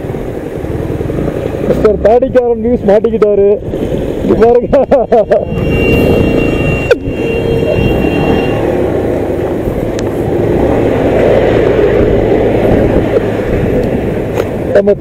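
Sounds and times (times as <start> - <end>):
motorcycle engine rumbling: 0.0 - 15.0.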